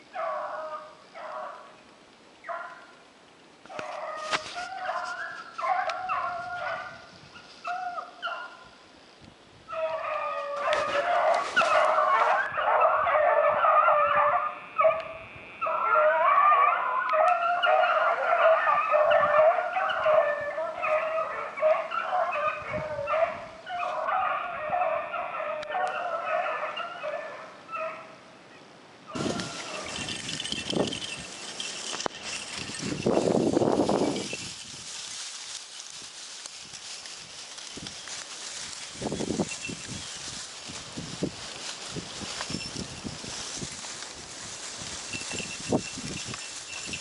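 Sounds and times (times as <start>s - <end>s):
hounds baying: 0.1s - 1.7s, 3.7s - 8.7s, 9.7s - 28.1s, 29.1s - 34.4s.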